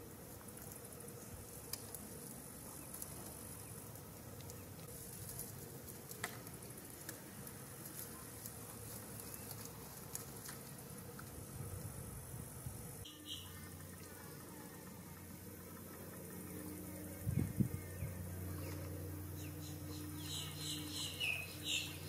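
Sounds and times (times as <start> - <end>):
high-pitched insect drone: 13.0 - 22.0.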